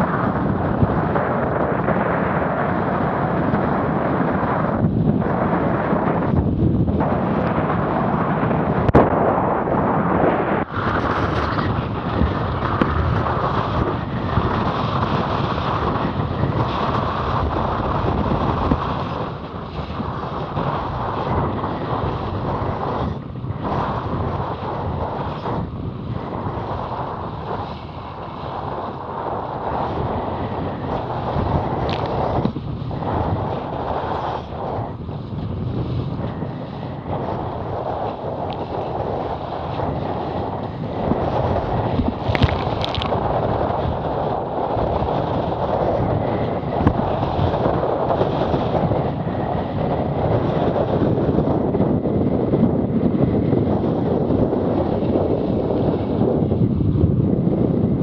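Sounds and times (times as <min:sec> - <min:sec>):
wind buffeting microphone: 0:00.0 - 0:58.0
choppy water splashing: 0:10.6 - 0:51.6.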